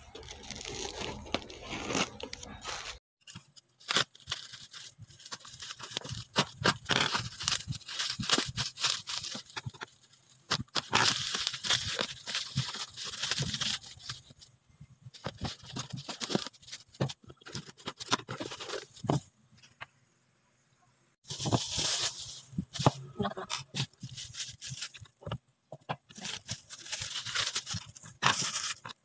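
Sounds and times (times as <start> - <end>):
plastic bag crinkling: 0.0 - 3.0, 3.7 - 14.4, 21.2 - 23.1, 23.7 - 25.2, 26.1 - 29.0.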